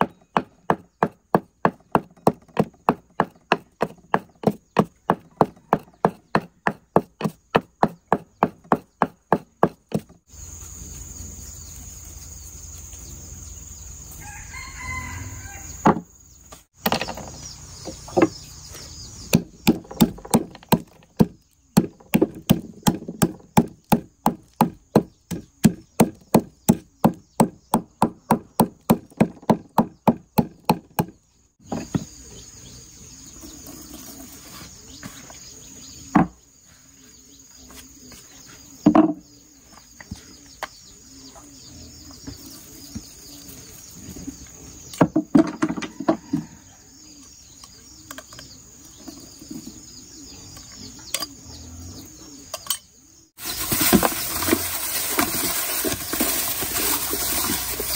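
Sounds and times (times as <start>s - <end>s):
wooden pestle pounding in mortar: 0.0s - 10.2s, 19.3s - 31.1s
rooster crowing: 14.2s - 15.8s, 45.8s - 46.9s.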